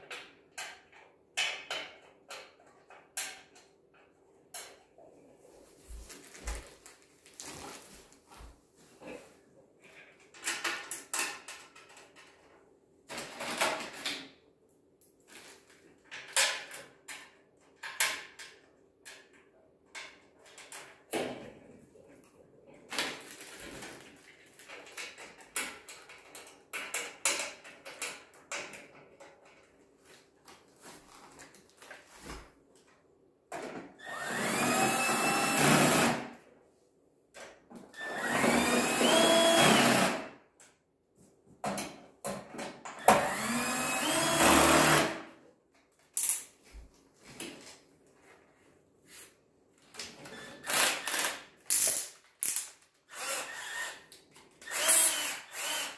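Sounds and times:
clicks and knocks of parts handled: 0:10.0 - 0:14.4, 0:45.7 - 0:46.8, 0:51.1 - 0:53.0
cordless drill driving screws: 0:34.0 - 0:36.2, 0:38.0 - 0:40.2, 0:43.0 - 0:45.2, 0:50.5 - 0:51.4, 0:53.1 - 0:54.0, 0:54.6 - 0:55.9.

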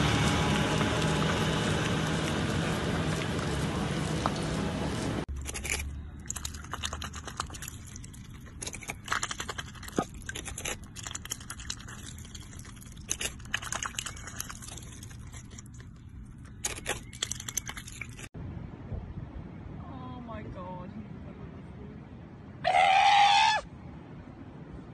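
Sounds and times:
duck crunching lettuce: 0:00.0 - 0:18.3.

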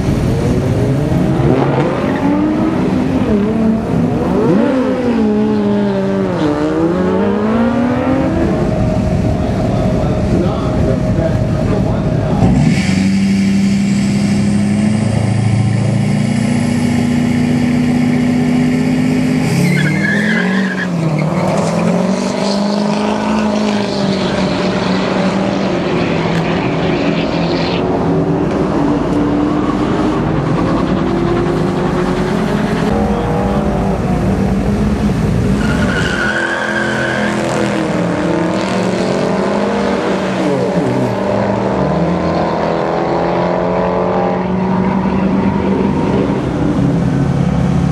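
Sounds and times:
racing engines accelerating: 0:00.0 - 0:47.9
tire squeal: 0:18.8 - 0:27.9, 0:35.5 - 0:38.1.

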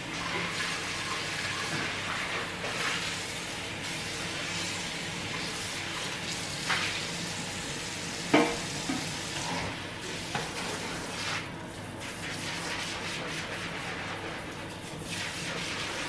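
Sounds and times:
pot knocking against sink: 0:08.3 - 0:09.1
tap running into a sink: 0:08.3 - 0:09.7, 0:10.3 - 0:10.8.

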